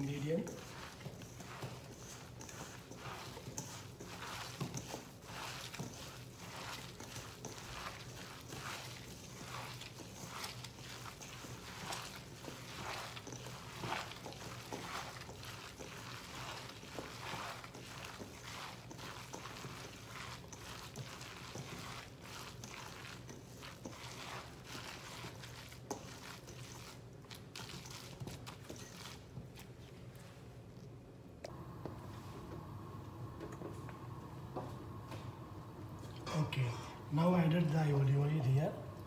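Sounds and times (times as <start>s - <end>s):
hands squishing food in a bowl: 0.0s - 31.1s
low steady hum: 28.5s - 39.0s.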